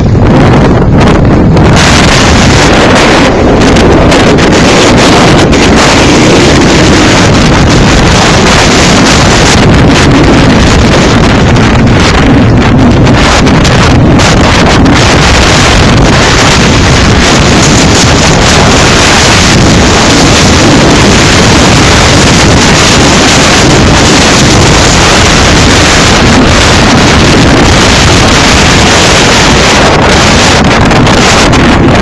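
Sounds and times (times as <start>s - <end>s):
wind buffeting microphone: 0.0s - 32.0s.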